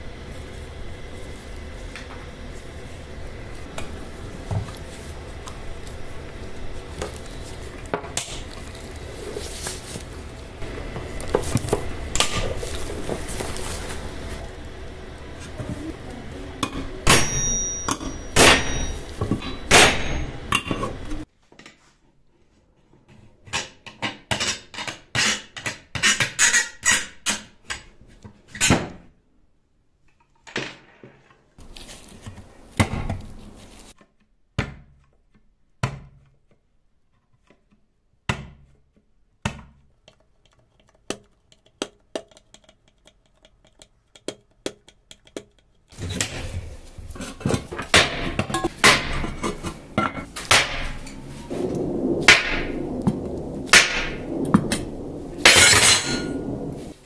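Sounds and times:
fast run of clicks: 40.0s - 46.0s.

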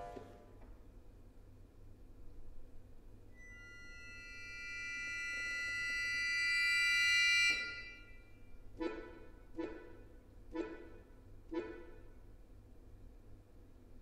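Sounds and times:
accordion sustained notes: 3.4s - 12.1s.

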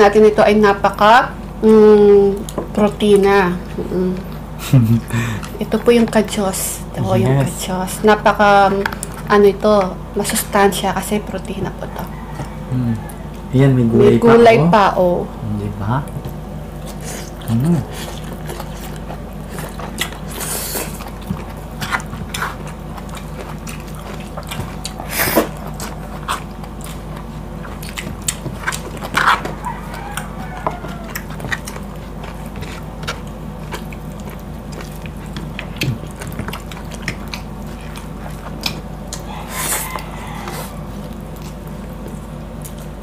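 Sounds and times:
chewing and lip smacks: 8.4s - 10.6s, 11.3s - 13.5s, 16.1s - 43.0s
fingers tearing meat: 16.2s - 43.0s.

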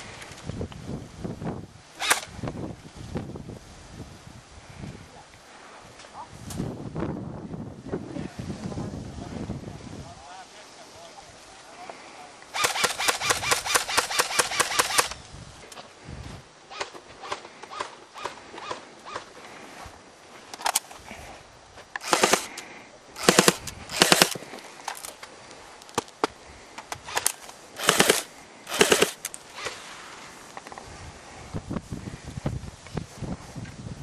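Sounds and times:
airsoft rifle full-auto bursts: 12.5s - 15.2s, 22.0s - 22.6s, 23.2s - 24.4s, 27.1s - 29.8s.

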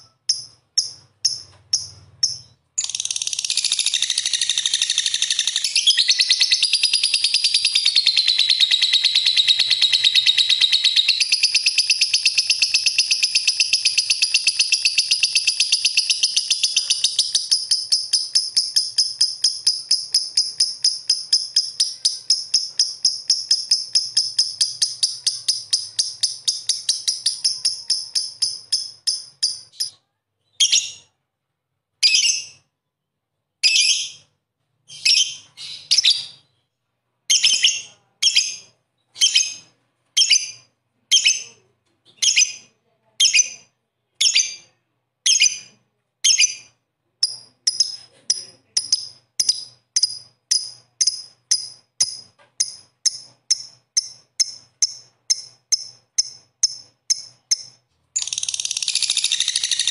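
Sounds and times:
bird shrill chattering song: 0.0s - 29.9s, 53.1s - 59.9s.

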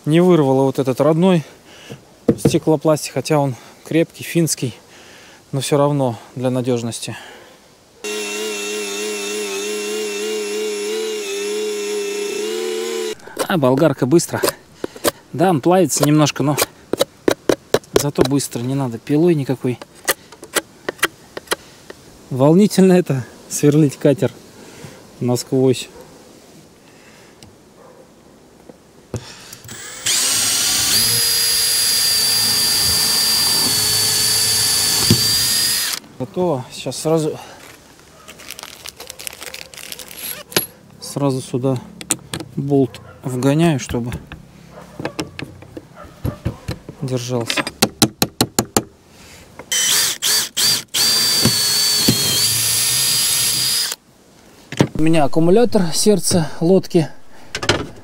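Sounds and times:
cordless drill whining: 8.0s - 13.4s, 29.5s - 36.0s, 49.7s - 54.0s.

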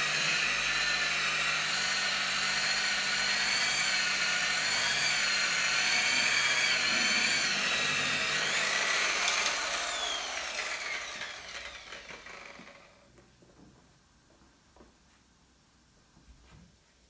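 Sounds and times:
rotary polisher motor whine: 0.0s - 13.1s.

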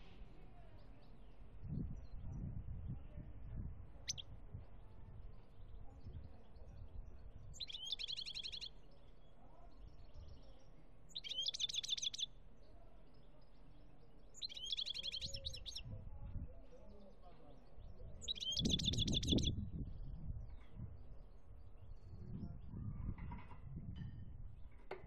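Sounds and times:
goldfinch singing: 4.0s - 4.2s, 7.5s - 8.8s, 11.1s - 12.3s, 14.3s - 15.8s, 18.2s - 19.5s.

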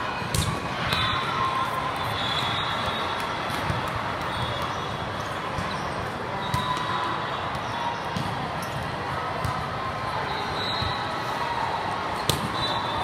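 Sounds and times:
din of busy hall: 0.0s - 13.0s
volleyballs struck and bouncing: 0.2s - 1.3s, 2.8s - 9.8s, 12.2s - 12.8s.

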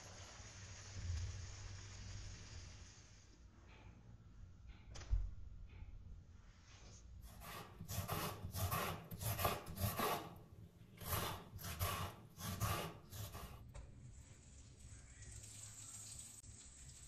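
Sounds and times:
kitchen tool rasping food: 7.2s - 13.6s.

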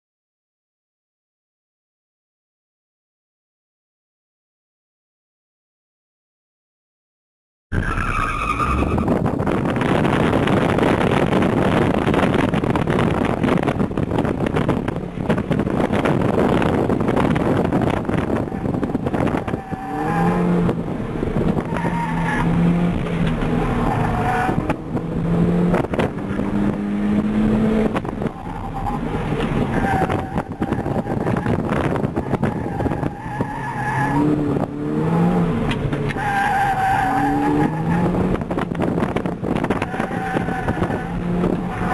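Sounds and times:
tires squealing: 7.7s - 14.4s, 15.2s - 25.0s, 27.8s - 41.9s
road and wind noise: 7.7s - 41.9s
car engine accelerating: 8.0s - 41.9s.

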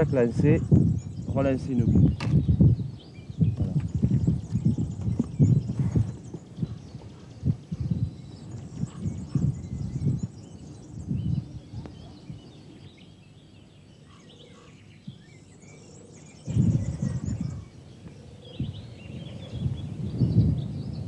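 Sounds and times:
birds chirping faintly: 0.0s - 21.0s
wind rumbling on microphone: 0.0s - 21.0s.

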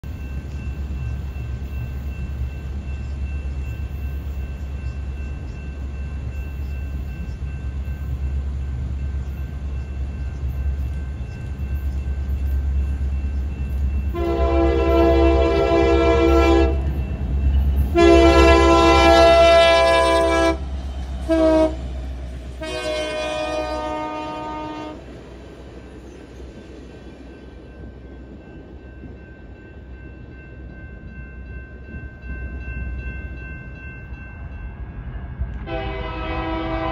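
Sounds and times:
diesel locomotive engine rumble: 0.0s - 36.9s
train air horn blasts: 14.1s - 16.9s, 17.9s - 20.6s, 21.2s - 22.0s, 22.6s - 25.0s, 35.6s - 36.9s.

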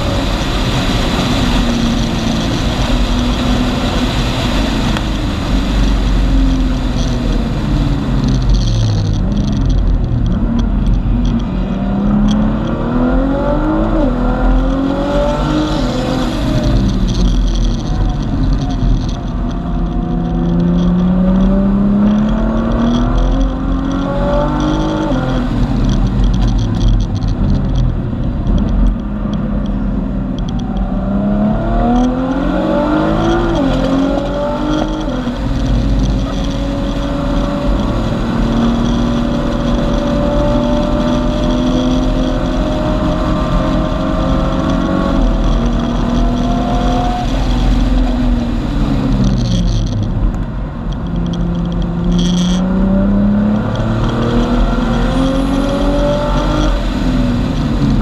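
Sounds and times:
car engine accelerating: 0.0s - 58.0s.

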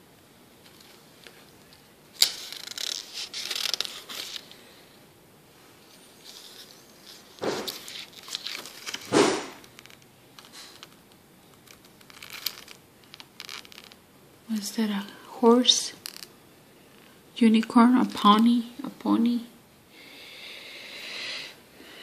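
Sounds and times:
paper pages turning: 2.2s - 4.6s, 6.2s - 14.0s.

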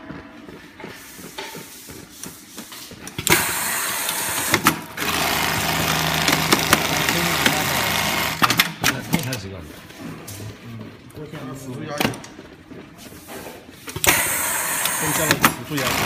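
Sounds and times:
sewing machine stitching: 3.3s - 8.7s, 14.0s - 16.0s.

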